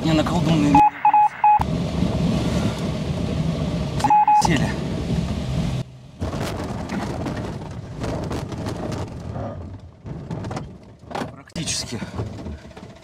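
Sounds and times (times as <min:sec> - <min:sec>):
glider wheel rumbling on grass: 0:06.2 - 0:13.0
knocks and bumps: 0:06.2 - 0:13.0.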